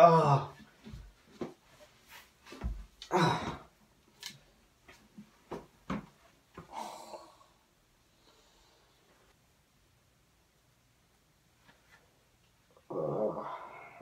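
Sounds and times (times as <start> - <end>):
man groaning and sighing: 0.0 - 0.6, 3.0 - 3.7, 6.7 - 7.5, 12.8 - 14.0
light knocks and shuffles: 0.6 - 3.0.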